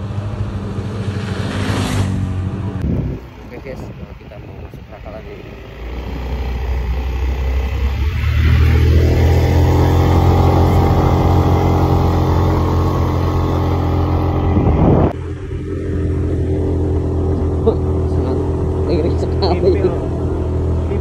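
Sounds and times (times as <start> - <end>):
scooter engine pulling uphill: 5.0 - 21.0.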